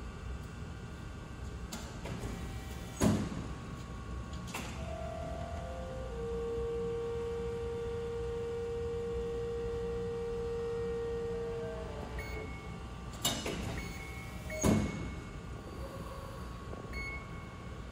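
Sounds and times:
press brake whining: 0:09.8 - 0:16.4
machine sharp clunks: 0:13.2 - 0:15.2.

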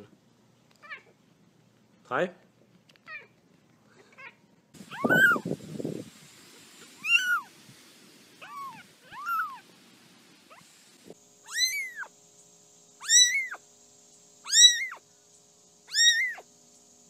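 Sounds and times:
kittens mewing: 0:04.0 - 0:05.5, 0:07.0 - 0:07.5, 0:08.4 - 0:09.6, 0:11.5 - 0:12.1, 0:13.0 - 0:13.6, 0:14.5 - 0:15.0, 0:15.9 - 0:16.4.

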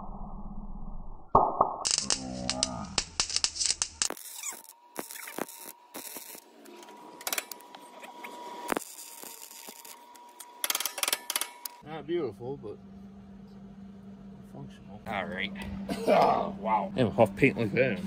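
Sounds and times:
welding arc crackling and popping: 0:01.6 - 0:11.8.

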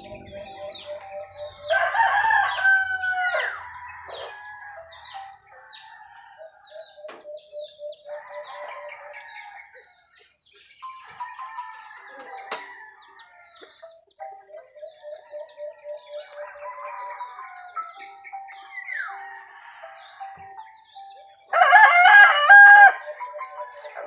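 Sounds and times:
rooster crowing: 0:00.0 - 0:07.1, 0:08.2 - 0:10.0, 0:11.0 - 0:13.7, 0:16.0 - 0:20.4, 0:21.5 - 0:24.0
small birds chirping: 0:00.0 - 0:24.0.

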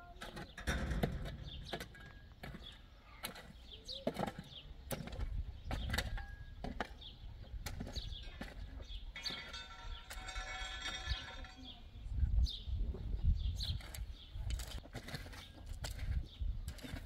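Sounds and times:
birds chirping faintly: 0:00.0 - 0:17.0
shovel digging stony soil: 0:13.7 - 0:17.0.

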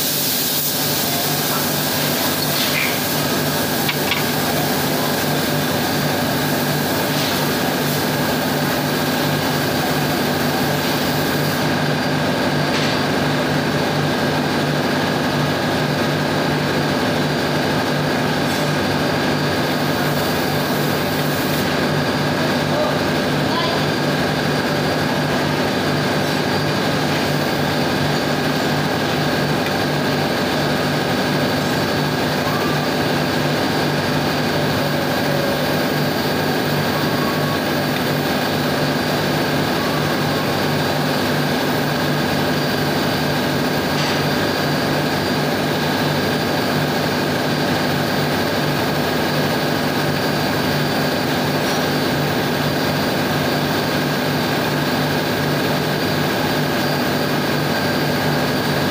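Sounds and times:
engine-room machinery drone: 0:00.0 - 0:58.9.

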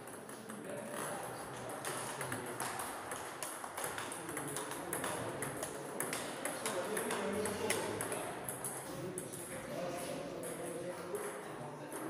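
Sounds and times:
ball clicking off bats: 0:01.8 - 0:08.8
ball bouncing on table: 0:01.8 - 0:09.5.

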